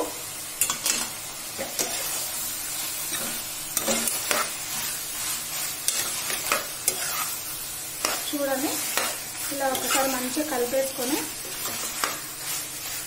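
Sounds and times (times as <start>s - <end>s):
food sizzling in pan: 0.0s - 13.0s
spoon scraping metal pan: 3.1s - 5.0s, 5.8s - 7.4s, 8.0s - 10.4s, 11.3s - 12.7s.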